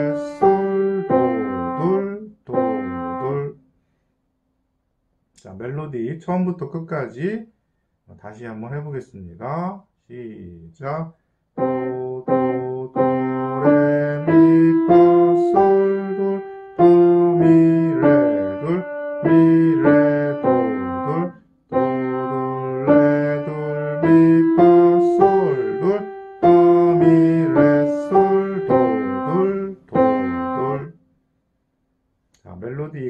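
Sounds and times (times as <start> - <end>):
piano melody single notes: 0.0 - 3.4, 11.6 - 30.9.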